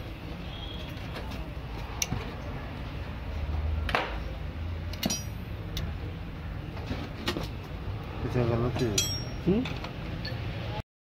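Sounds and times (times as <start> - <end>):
metal tools clinking: 5.0 - 5.5, 8.8 - 10.4.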